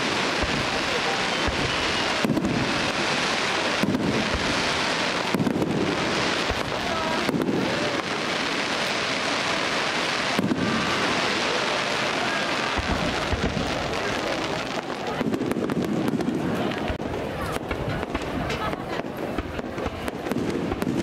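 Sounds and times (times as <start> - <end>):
fireworks crackling: 0.0 - 21.0.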